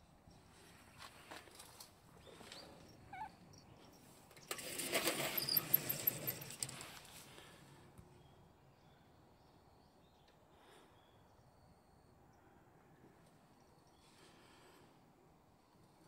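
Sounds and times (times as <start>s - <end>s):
sliding door rattling on track: 4.5s - 6.8s.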